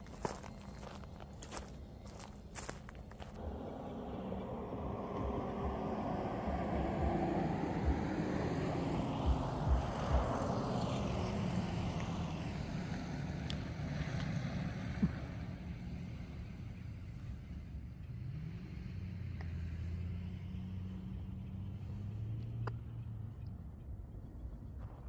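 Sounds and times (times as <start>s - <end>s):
wind gusts on microphone: 3.3s - 13.0s.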